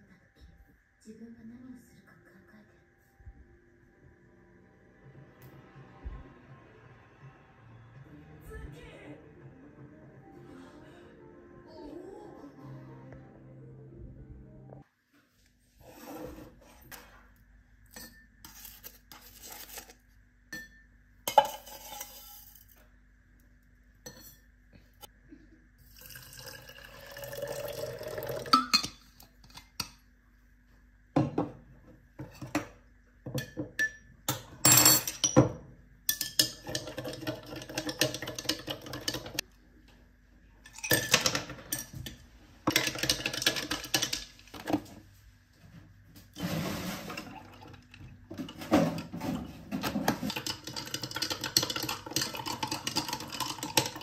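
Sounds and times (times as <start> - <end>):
coffee pouring: 25.8 - 29.0, 46.4 - 49.2, 49.8 - 54.0
utensil stirring against glass: 36.2 - 39.4, 50.1 - 54.0.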